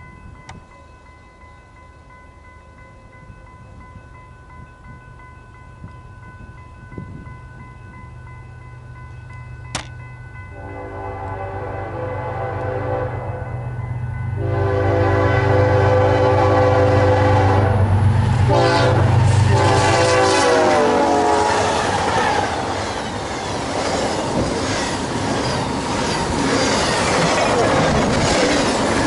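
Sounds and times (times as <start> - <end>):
train air horn blasts: 10.5 - 13.6, 14.4 - 22.7
rush of freight cars passing: 10.6 - 29.0.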